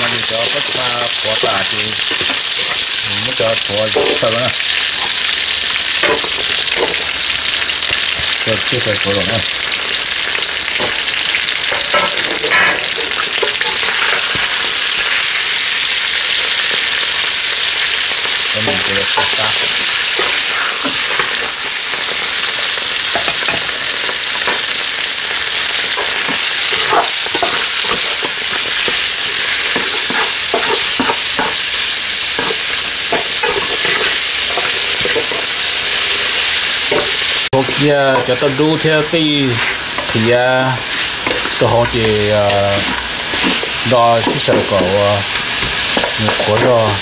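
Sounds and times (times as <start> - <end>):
meat sizzling in hot fat: 0.0 - 47.0
metal spatula scraping pot: 18.6 - 36.0.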